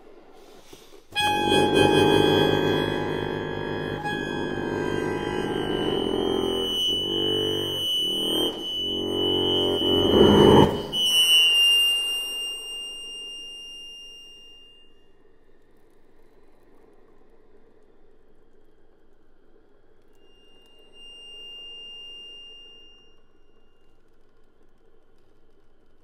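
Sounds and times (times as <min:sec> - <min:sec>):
button accordion chords: 0:01.2 - 0:11.0.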